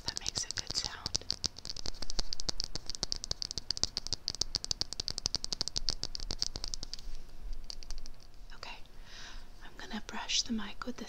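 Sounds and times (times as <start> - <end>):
brush scratching microphone: 0.0 - 8.4.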